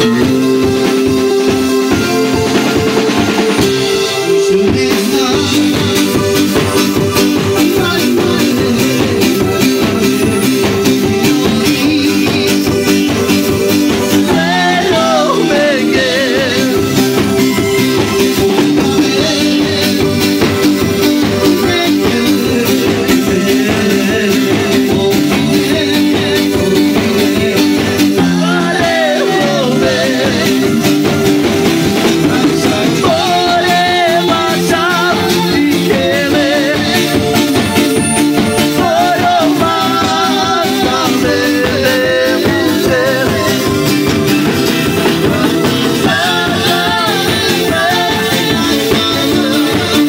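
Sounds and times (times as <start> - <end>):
acoustic guitar: 0.0 - 50.0
drum kit: 0.0 - 50.0
electric bass: 0.0 - 50.0
keyboard: 0.0 - 50.0.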